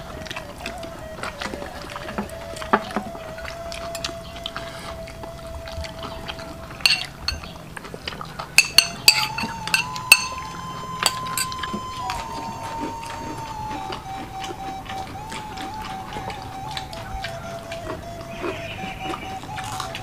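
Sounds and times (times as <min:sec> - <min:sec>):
spoon clinking on plate: 0:06.8 - 0:07.5, 0:08.6 - 0:10.4, 0:11.0 - 0:11.6.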